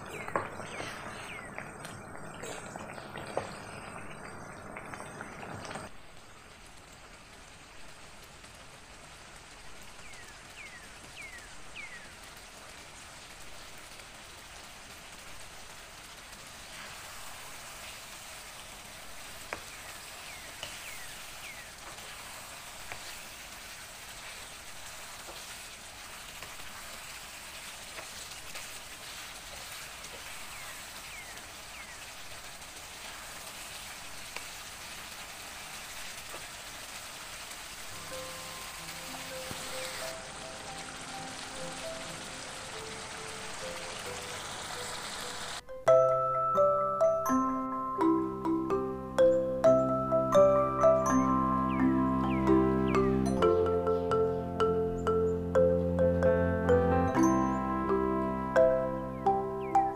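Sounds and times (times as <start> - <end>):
chicken sizzling in a frying pan: 0.0 - 45.6.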